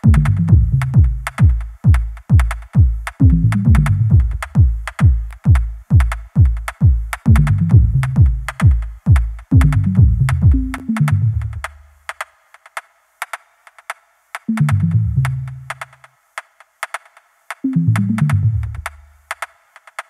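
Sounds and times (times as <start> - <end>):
bass line: 0.0 - 6.1, 6.8 - 11.8, 14.5 - 15.8, 17.7 - 19.0
electronic music: 0.0 - 11.8, 14.4 - 16.1, 17.6 - 19.5
drum machine beat: 0.0 - 20.0.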